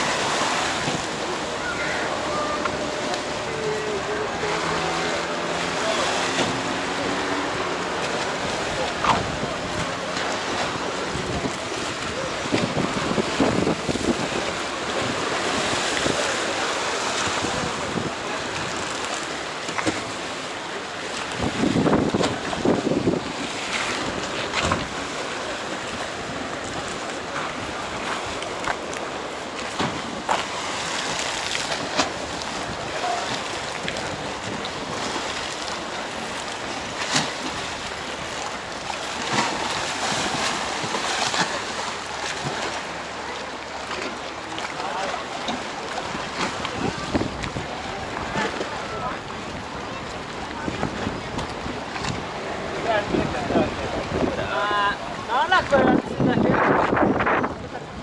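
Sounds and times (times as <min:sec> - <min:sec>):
waves splashing against stone quay: 0:00.0 - 0:58.0
wind blowing over microphone: 0:10.6 - 0:16.3, 0:17.2 - 0:18.9, 0:21.2 - 0:25.1, 0:46.1 - 0:58.0.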